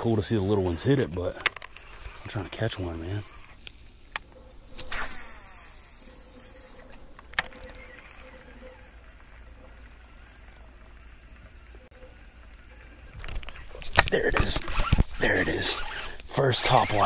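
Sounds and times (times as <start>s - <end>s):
fishing reel retrieving: 0.0s - 3.8s, 4.7s - 17.0s
sharp click: 6.8s - 8.4s.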